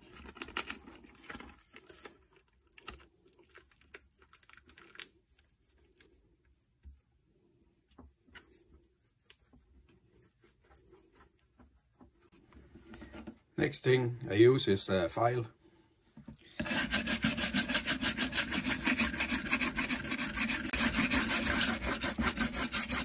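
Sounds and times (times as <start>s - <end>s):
plastic film peeling and crinkling: 0.0s - 6.2s.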